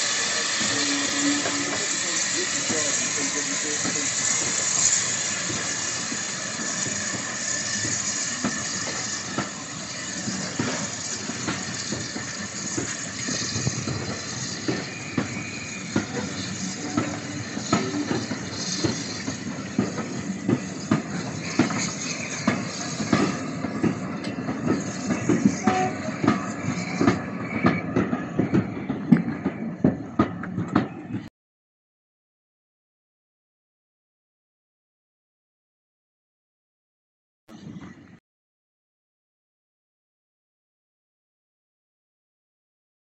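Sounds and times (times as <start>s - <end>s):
steam locomotive hissing: 0.0s - 31.3s.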